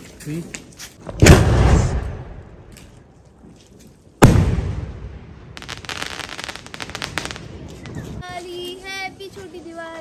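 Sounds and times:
firework bangs with echo: 4.2 - 7.4.

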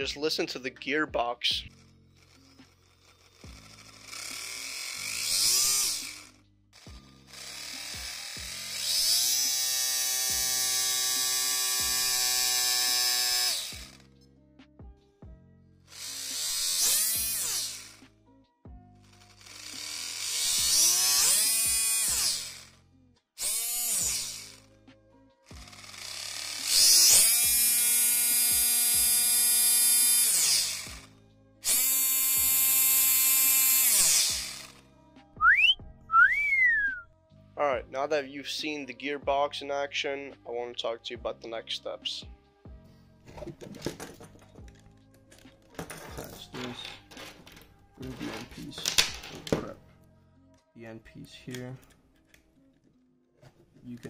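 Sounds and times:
electric motor whine: 1.7 - 14.1, 15.9 - 18.0, 19.0 - 22.7, 23.4 - 24.7, 25.5 - 34.8
high-pitched gear whine: 2.2 - 14.0.

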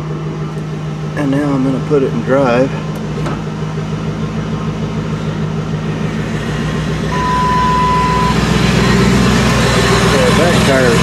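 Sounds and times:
truck engine running: 0.0 - 11.0
steady beep tone: 7.1 - 9.0.

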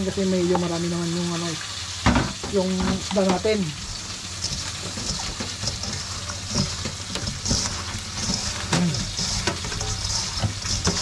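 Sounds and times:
wet squishing of fish scrubbed: 4.4 - 11.0.

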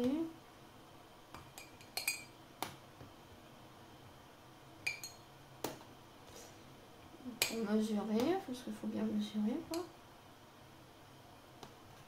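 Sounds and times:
spoon clinking on glass: 1.6 - 2.3, 4.8 - 5.2.

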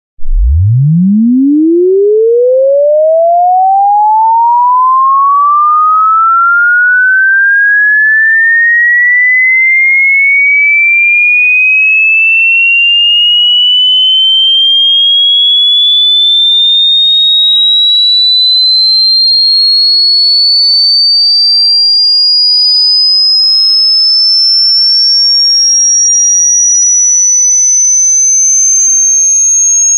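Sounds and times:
electronic tone sweeping upward: 0.2 - 9.7, 12.4 - 16.1.

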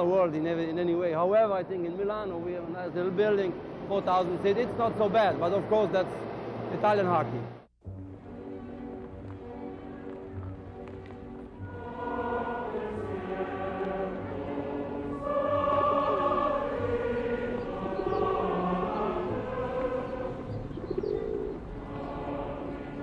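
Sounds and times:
choir singing held notes: 11.5 - 23.0.

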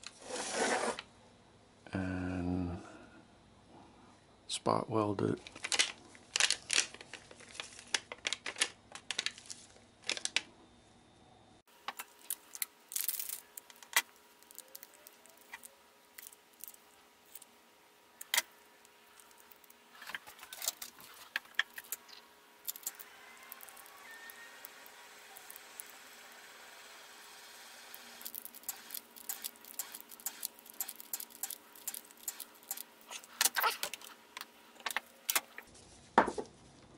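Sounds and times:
batteries and tools clicking: 11.8 - 17.5, 18.2 - 26.0, 27.9 - 35.7.

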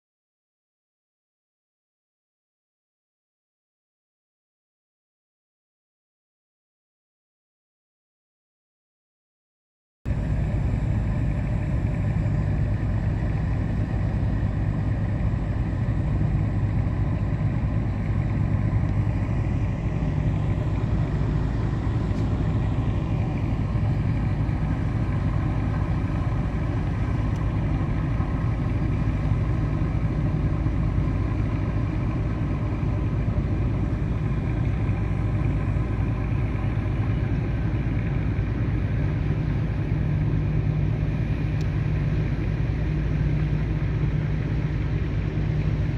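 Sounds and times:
ship diesel engines droning: 10.1 - 45.9.

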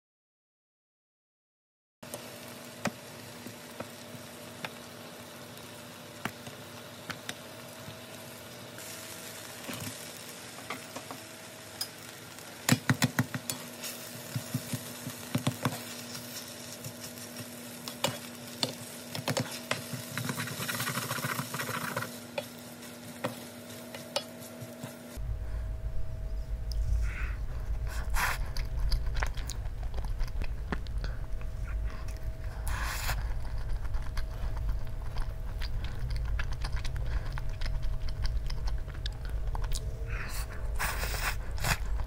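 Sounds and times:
food sizzling in frying pan: 2.0 - 25.2
wooden spoon stirring: 13.2 - 25.2
steady low hum: 13.4 - 42.0.

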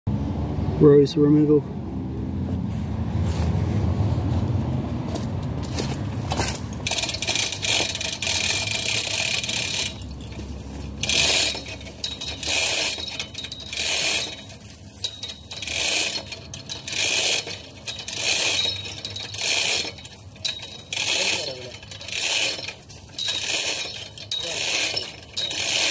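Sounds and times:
metal chain rattling through hoist: 4.5 - 25.9.

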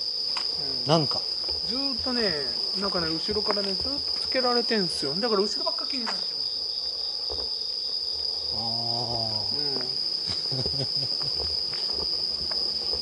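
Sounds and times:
night insects chorus: 0.0 - 13.0
soft footsteps: 1.3 - 4.4, 9.8 - 13.0.

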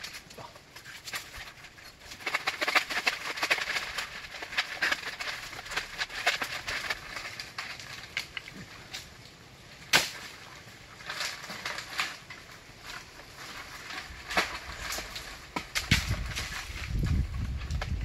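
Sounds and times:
palm fronds rustling and scraping: 0.0 - 18.0
sharp crack: 9.8 - 12.4.

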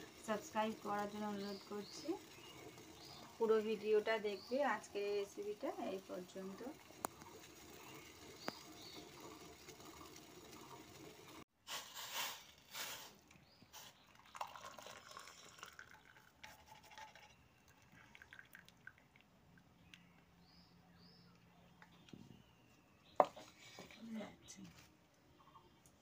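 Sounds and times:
faint drips: 0.0 - 11.4, 13.8 - 20.6
tea pouring into a cup: 0.0 - 11.4, 13.9 - 19.7.

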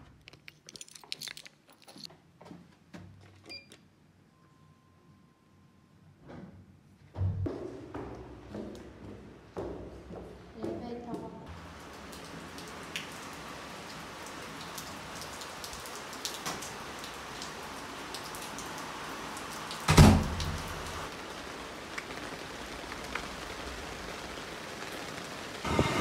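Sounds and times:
heavy rain falling: 11.5 - 26.0.

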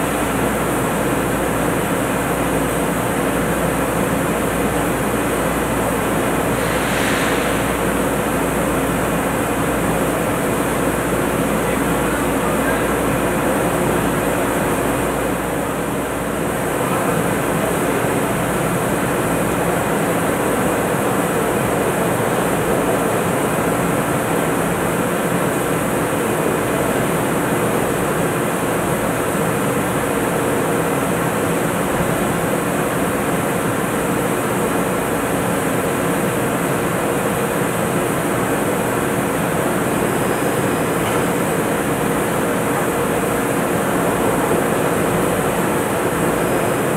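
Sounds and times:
heavy machinery hum: 0.0 - 30.2.

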